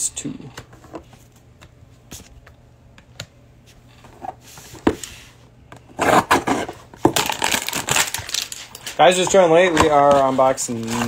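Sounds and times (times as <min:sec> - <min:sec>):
cardboard rustling: 0:06.0 - 0:11.0.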